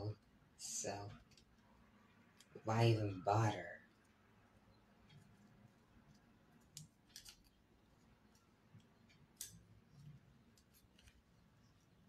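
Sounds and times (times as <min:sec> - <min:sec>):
scissors snipping: 0:06.1 - 0:07.6.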